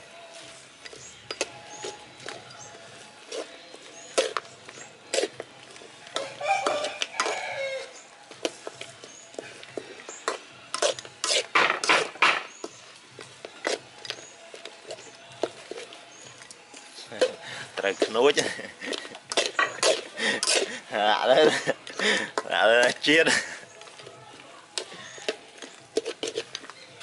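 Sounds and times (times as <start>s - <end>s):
cooking utensils clattering: 9.5s - 12.8s, 13.6s - 24.0s, 24.8s - 27.0s.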